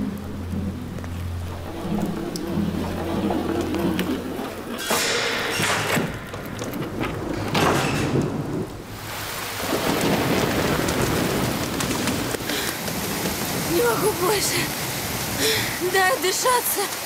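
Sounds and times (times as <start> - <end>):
heavy rain: 0.0 - 17.0
loud thunder cracks: 5.0 - 14.0.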